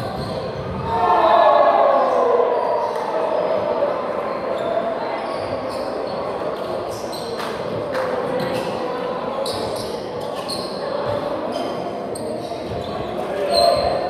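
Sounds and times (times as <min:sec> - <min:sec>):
sneakers squeaking on hardwood: 0:00.0 - 0:00.9, 0:09.4 - 0:14.0
faint voices murmuring: 0:00.0 - 0:14.0.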